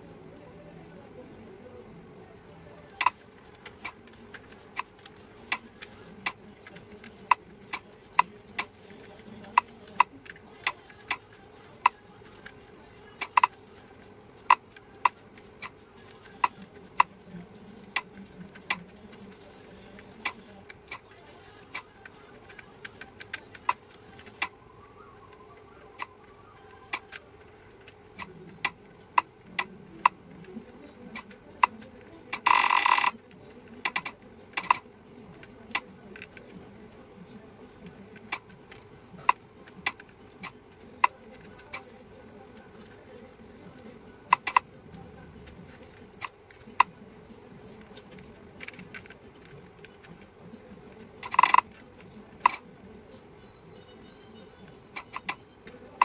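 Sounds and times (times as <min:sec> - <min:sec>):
mechanical keyboard clicks: 0:22.5 - 0:24.5, 0:25.3 - 0:36.5, 0:43.8 - 0:44.7, 0:51.2 - 0:52.6.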